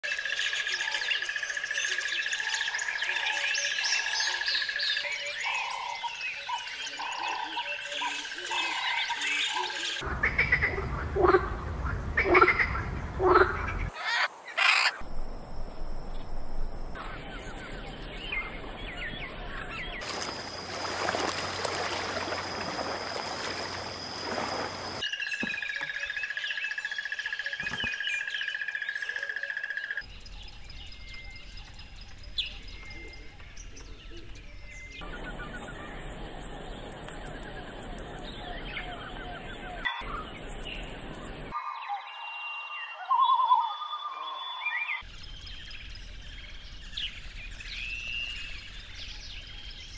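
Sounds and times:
birds chirping: 0.1s - 49.9s
harsh bird squawks: 12.2s - 15.0s.

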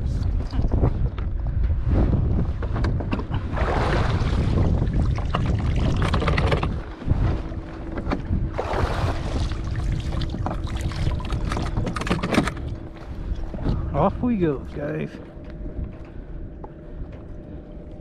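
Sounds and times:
boat engine rumble: 0.0s - 18.0s
wind buffeting microphone: 0.0s - 18.0s
faint steady hum: 4.5s - 18.0s.

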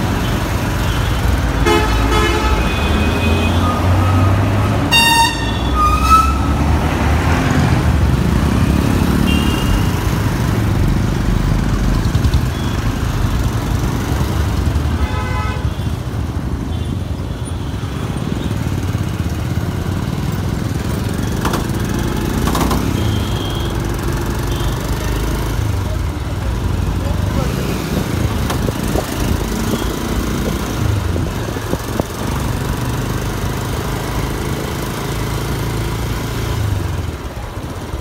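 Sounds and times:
vehicle horn honking: 1.6s - 6.6s, 9.3s - 9.9s, 15.0s - 15.9s.

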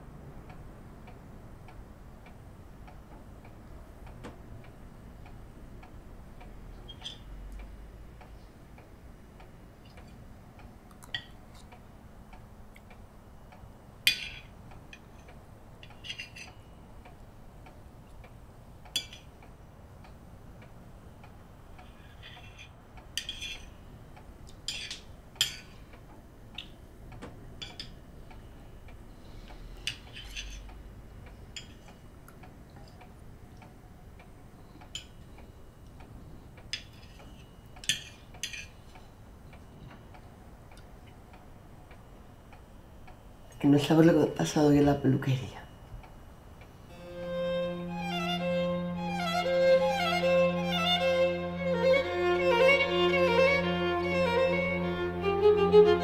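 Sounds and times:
cutlery clinking against plates: 14.1s - 14.5s, 15.2s - 16.5s, 19.0s - 19.3s, 22.2s - 23.7s, 24.7s - 25.7s.

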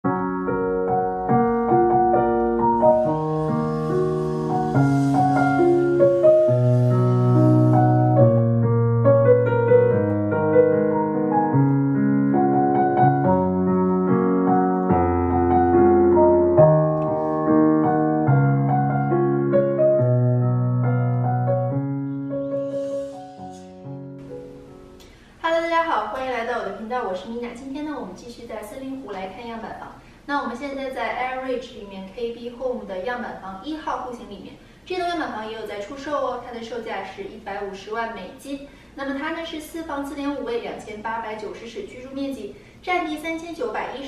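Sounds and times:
piano music: 0.0s - 25.1s.

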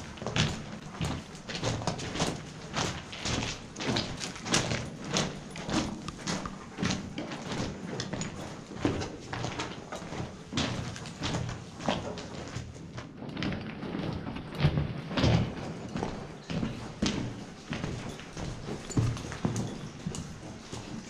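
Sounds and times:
footsteps scuffing in tunnel: 0.0s - 21.0s.

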